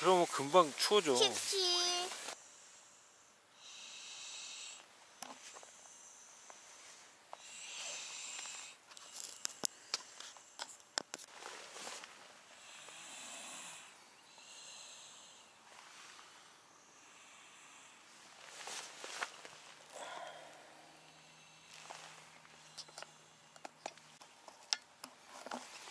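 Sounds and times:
child breathing in sleep: 0:02.2 - 0:10.6, 0:12.5 - 0:18.8, 0:19.9 - 0:23.6.

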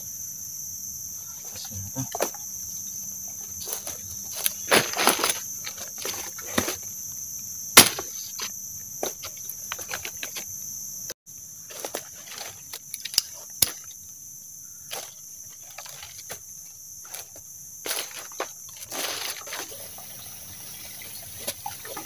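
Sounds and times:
high insect drone: 0:00.0 - 0:22.0
dry leaves crackling: 0:03.6 - 0:06.8, 0:14.8 - 0:20.5
machete hacking vine: 0:07.8 - 0:08.5.

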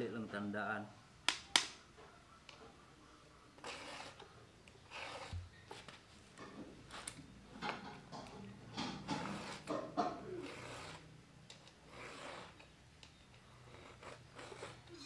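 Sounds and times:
file rasping on chainsaw chain: 0:03.6 - 0:04.2, 0:10.4 - 0:11.1, 0:11.9 - 0:12.6.

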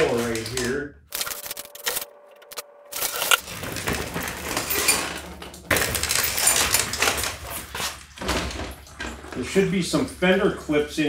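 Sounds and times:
plastic drain pan rattling: 0:03.4 - 0:10.1.

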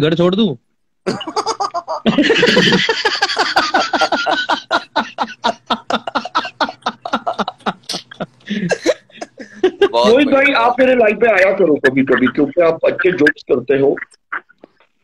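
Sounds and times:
men laughing hard: 0:01.1 - 0:10.3.

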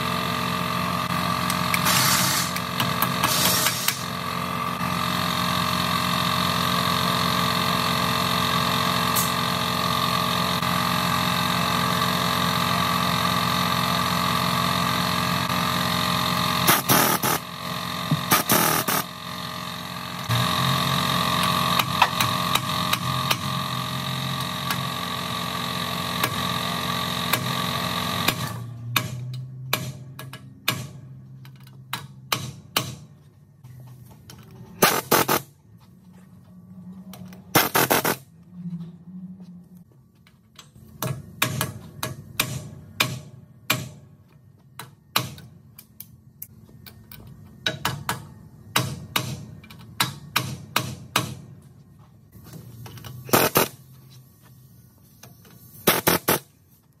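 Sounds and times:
machine hum with held tones: 0:00.0 - 0:32.0, 0:33.2 - 0:41.2, 0:51.6 - 0:57.0.

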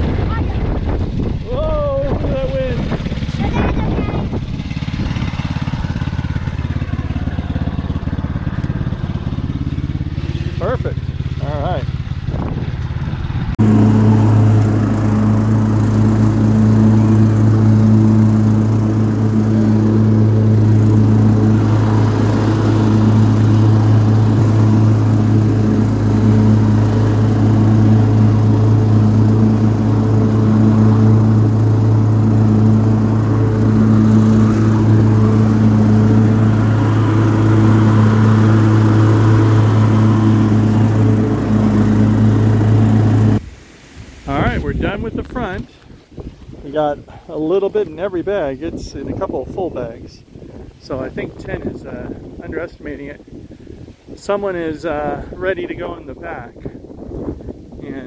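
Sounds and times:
lawn mower engine running: 0:00.0 - 0:45.7.

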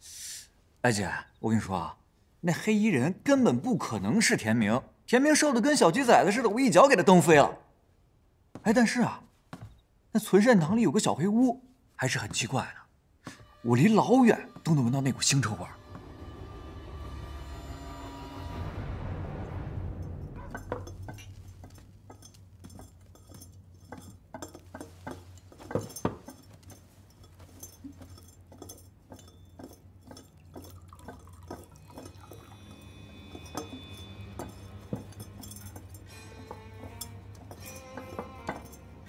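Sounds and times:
low steady hum: 0:15.6 - 0:39.0
ceramic jars clinking on wooden table: 0:20.4 - 0:39.0.

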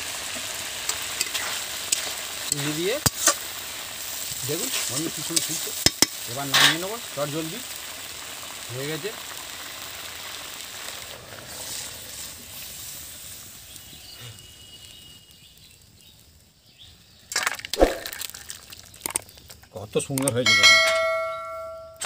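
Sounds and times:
curry bubbling and hissing: 0:00.0 - 0:20.4
metal pot clattering and scraping: 0:05.0 - 0:06.8.

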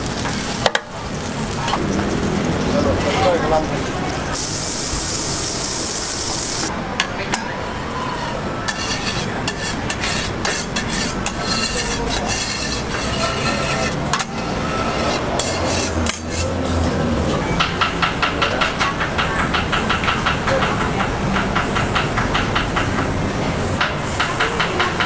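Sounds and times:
butter sizzling on griddle: 0:00.0 - 0:06.7, 0:08.7 - 0:17.4
metal spatula scraping griddle: 0:08.7 - 0:17.4.

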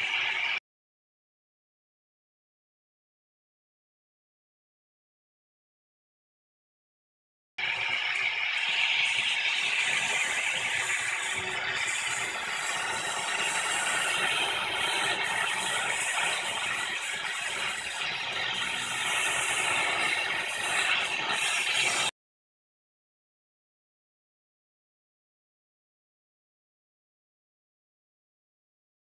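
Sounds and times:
torch flame hissing: 0:00.0 - 0:00.6, 0:07.6 - 0:22.1.

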